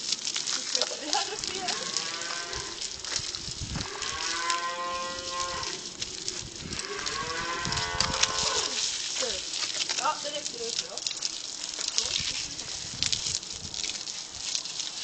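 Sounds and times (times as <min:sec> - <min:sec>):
garden hose spraying water: 0:00.0 - 0:15.0
cattle mooing: 0:01.5 - 0:02.8, 0:03.8 - 0:05.8, 0:06.7 - 0:08.8.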